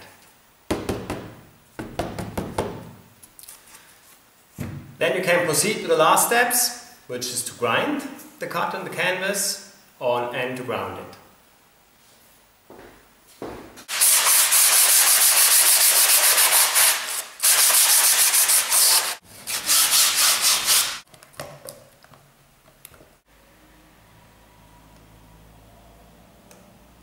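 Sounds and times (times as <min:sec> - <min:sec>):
sandpaper rubbing on canvas: 0:13.9 - 0:21.0.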